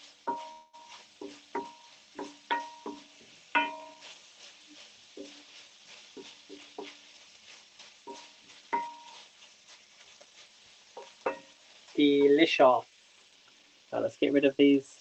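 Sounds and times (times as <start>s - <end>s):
faint frying sizzle: 0.0s - 15.0s
utensil knocking metal pan: 0.3s - 4.0s, 8.1s - 9.2s, 11.0s - 11.6s.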